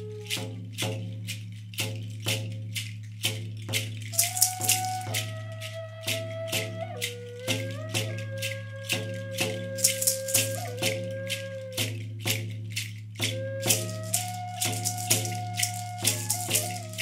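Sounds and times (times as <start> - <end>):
wooden flute melody: 0.0 - 0.6, 4.1 - 12.5, 13.2 - 17.0
frame drum beat: 0.0 - 17.0
hand rattle shaking: 0.0 - 17.0
maraca shaking: 0.0 - 17.0.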